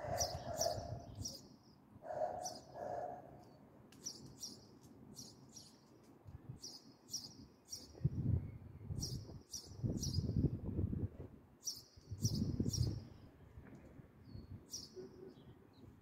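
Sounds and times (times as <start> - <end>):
larger bird low calls: 0.0 - 3.2
sparrows chirping: 0.0 - 8.0, 8.8 - 10.4, 11.6 - 13.4, 14.2 - 16.0.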